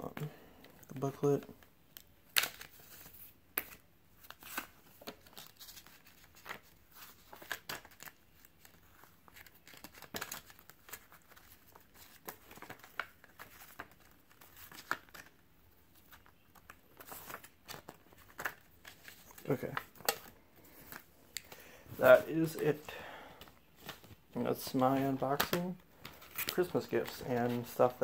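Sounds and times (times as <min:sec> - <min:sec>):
paper pages rustling: 0:02.4 - 0:22.8, 0:23.4 - 0:28.0.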